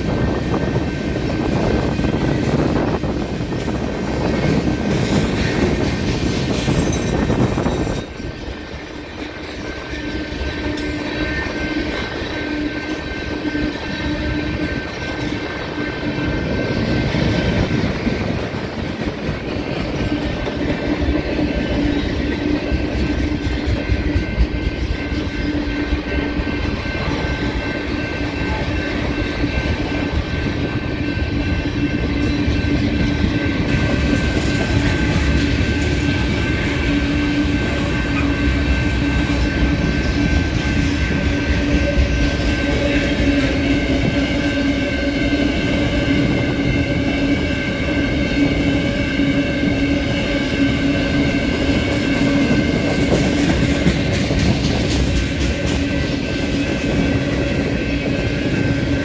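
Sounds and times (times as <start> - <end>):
train wheels rumbling on rail: 0.0 - 59.0
steady high tone: 6.8 - 53.8.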